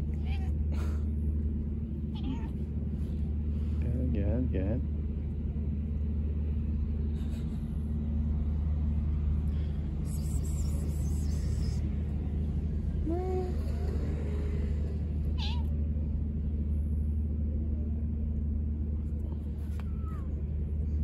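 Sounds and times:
steady low hum: 0:00.0 - 0:21.0
cat meowing: 0:02.1 - 0:02.6, 0:15.4 - 0:15.7.

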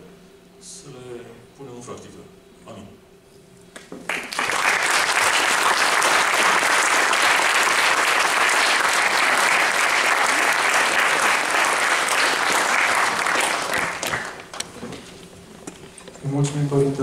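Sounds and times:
audience applauding: 0:04.0 - 0:14.6.

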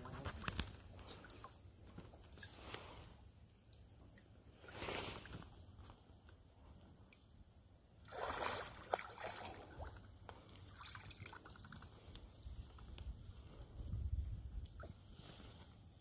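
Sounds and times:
fish splashing in water: 0:08.1 - 0:10.0.

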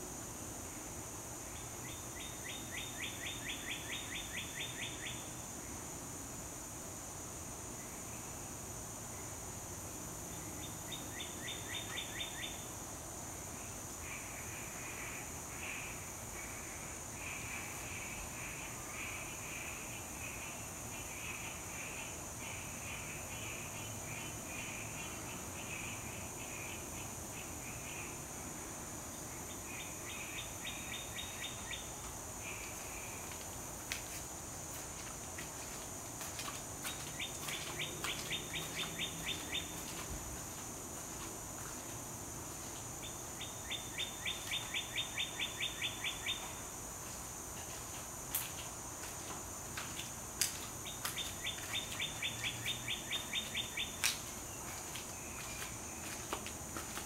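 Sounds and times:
bird chirping: 0:37.2 - 0:39.9.

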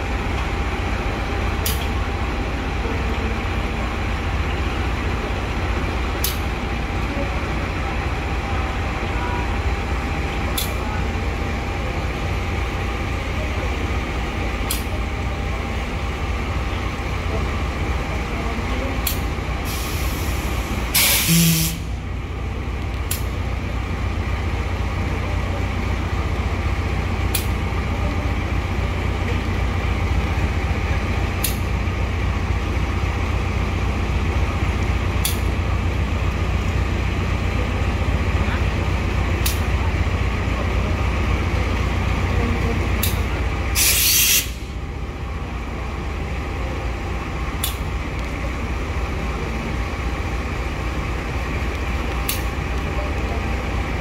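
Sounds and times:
locomotive idling: 0:00.0 - 0:54.0
air release hiss: 0:19.7 - 0:21.9, 0:43.8 - 0:44.7.

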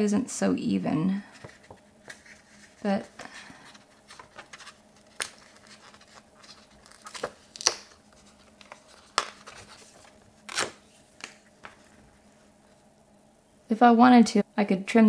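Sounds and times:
paper crinkling: 0:01.3 - 0:12.8
paper tearing: 0:04.0 - 0:10.8.

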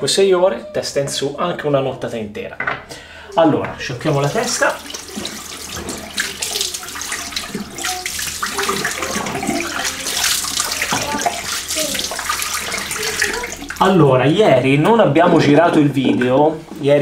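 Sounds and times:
tap water running: 0:03.5 - 0:17.0
water splashing on head: 0:04.0 - 0:14.0.

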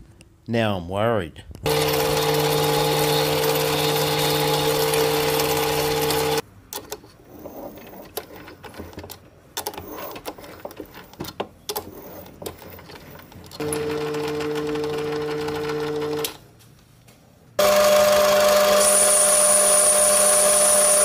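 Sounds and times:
lathe motor whine: 0:01.7 - 0:06.4, 0:17.6 - 0:21.0.

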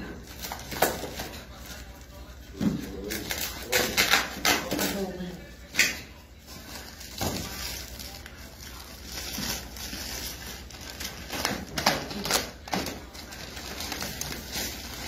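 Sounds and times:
plastic crinkling: 0:06.4 - 0:15.0.

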